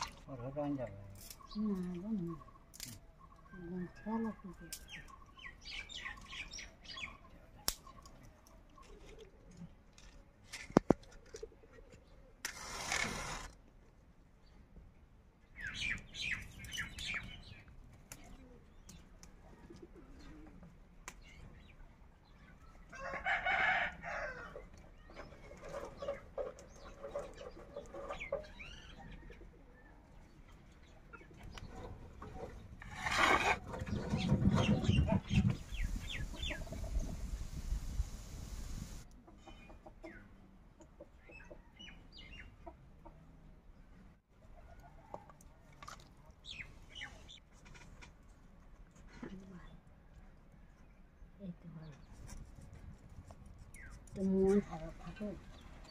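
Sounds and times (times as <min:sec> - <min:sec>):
match striking: 0:12.4 - 0:13.6
bird calls: 0:30.8 - 0:37.2
chickens clucking: 0:33.6 - 0:37.3, 0:39.1 - 0:43.6.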